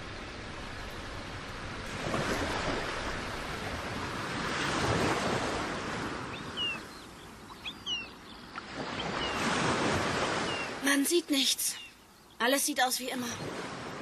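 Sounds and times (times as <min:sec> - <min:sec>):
sea waves washing in: 0:00.0 - 0:12.0, 0:12.8 - 0:14.0
high falling bird cries: 0:06.3 - 0:09.5.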